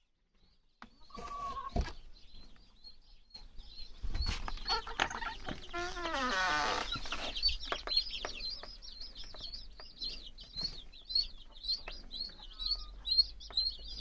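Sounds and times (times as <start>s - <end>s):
chicks peeping: 0.0s - 14.0s
wooden door creaking open: 4.8s - 7.1s.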